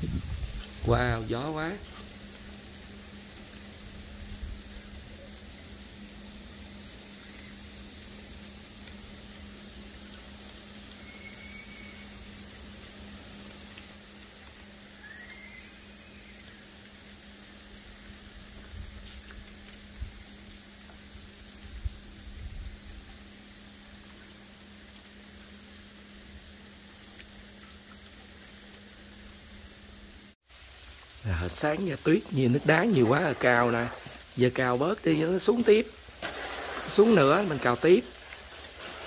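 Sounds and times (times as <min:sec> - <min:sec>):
wind gusts bumping microphone: 0:00.0 - 0:01.2
sleet pattering: 0:31.2 - 0:39.0.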